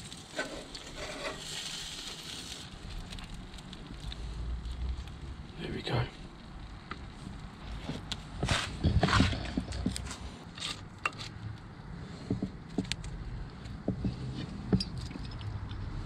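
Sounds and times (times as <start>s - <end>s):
herb sprigs rustling: 0.0s - 5.3s.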